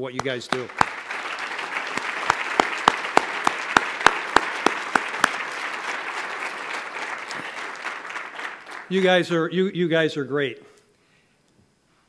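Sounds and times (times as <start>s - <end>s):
sharp loud claps: 0.0s - 9.4s
audience applauding: 0.2s - 9.4s.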